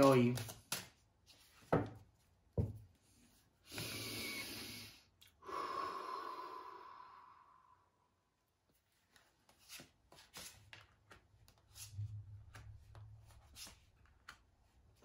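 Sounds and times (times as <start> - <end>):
cards tapping: 0.0 - 1.0, 9.2 - 14.5
person breathing: 3.6 - 8.3.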